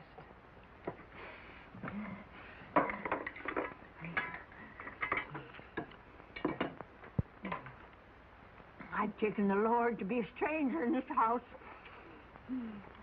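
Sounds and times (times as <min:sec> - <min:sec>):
dishes and utensils clinking: 0:02.8 - 0:06.8.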